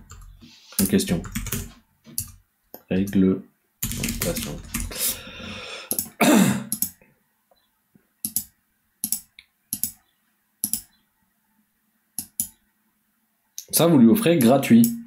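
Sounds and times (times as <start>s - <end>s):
computer keyboard keystrokes: 0.0s - 2.4s, 3.8s - 4.9s, 8.2s - 10.0s, 10.6s - 10.8s.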